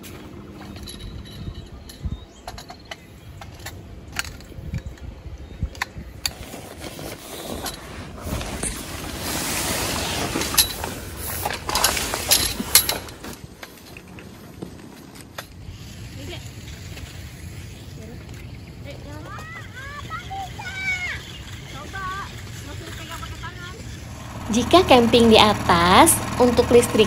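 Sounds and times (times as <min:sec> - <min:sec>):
gear clicks and clinks: 0:00.0 - 0:09.2, 0:09.8 - 0:27.0
camping gear rustling: 0:00.0 - 0:19.3.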